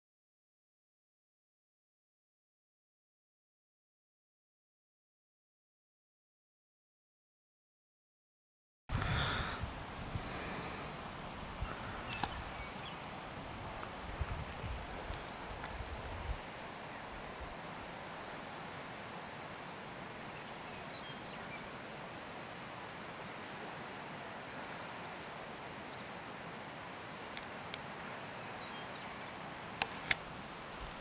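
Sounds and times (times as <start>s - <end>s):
wind buffeting microphone: 8.9s - 16.5s
steady quiet hiss: 8.9s - 31.0s.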